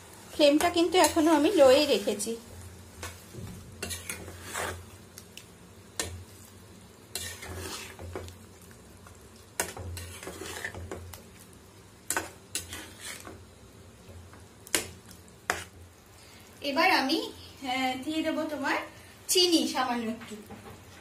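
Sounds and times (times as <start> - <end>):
food sizzling: 0.0 - 21.0
spatula scraping a pan: 0.4 - 2.3, 3.0 - 5.0, 7.1 - 8.3, 9.6 - 11.2, 12.1 - 13.4, 14.7 - 15.8.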